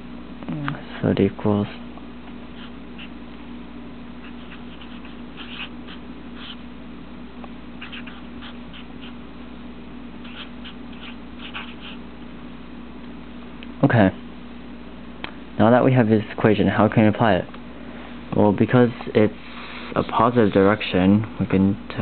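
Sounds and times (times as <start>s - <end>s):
steady low hum: 0.0s - 22.0s
marker scratching on paper: 2.5s - 3.2s, 4.2s - 6.6s, 7.8s - 9.2s, 10.2s - 12.0s.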